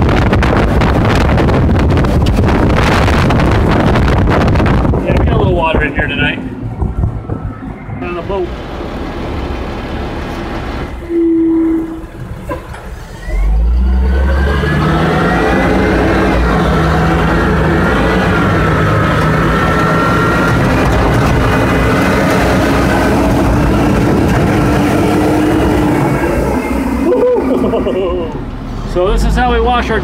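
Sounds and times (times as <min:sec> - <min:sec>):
diesel truck engine pulling under load: 0:00.0 - 0:30.0
heavy rain on truck cab: 0:08.2 - 0:11.0, 0:16.0 - 0:28.1.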